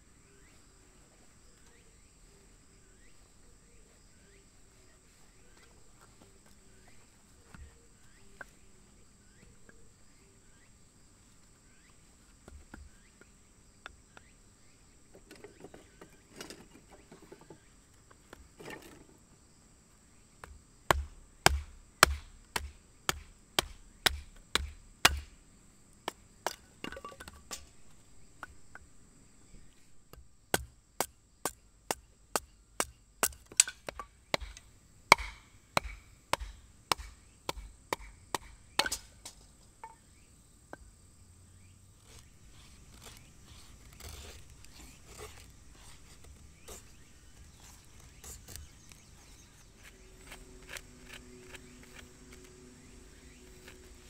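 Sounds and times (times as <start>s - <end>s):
wood handling: 26.1s - 28.9s.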